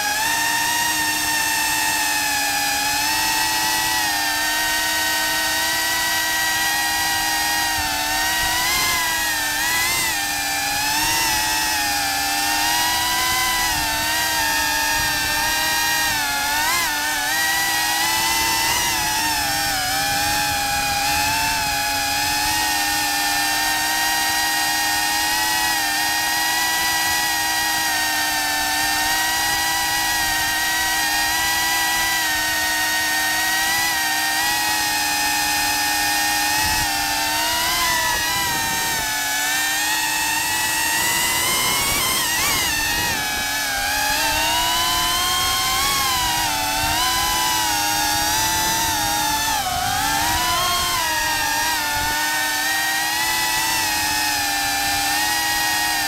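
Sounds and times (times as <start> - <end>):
drone motors whining: 0.0 - 56.0.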